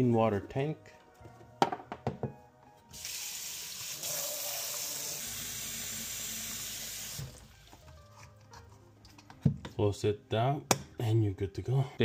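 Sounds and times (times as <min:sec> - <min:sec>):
knock: 0:01.6 - 0:02.4
tap water running into tank: 0:02.9 - 0:07.8.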